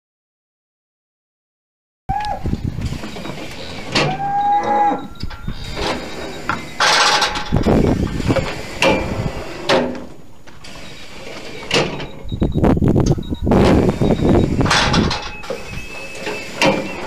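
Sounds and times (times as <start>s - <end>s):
metal gates clanging shut: 2.8s - 12.3s, 13.0s - 17.0s.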